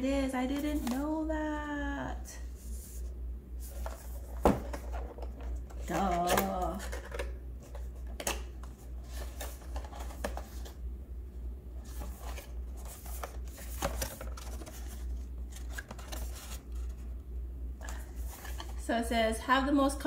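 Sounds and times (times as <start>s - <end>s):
paperboard box rustling: 0.6s - 1.1s, 3.6s - 8.2s, 8.9s - 10.8s, 11.8s - 17.1s, 17.8s - 18.8s.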